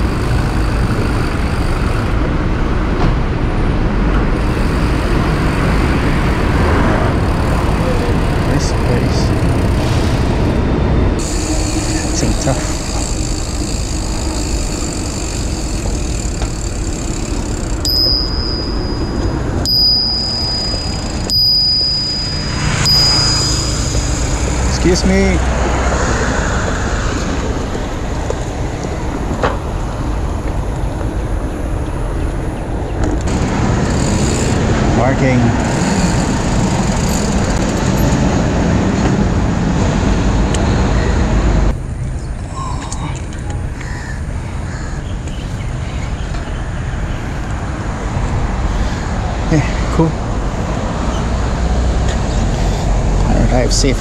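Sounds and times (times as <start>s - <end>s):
bike rolling noise: 0.0s - 42.5s
wind and tyre rumble: 0.0s - 54.0s
bicycle bell ding: 11.2s - 25.3s.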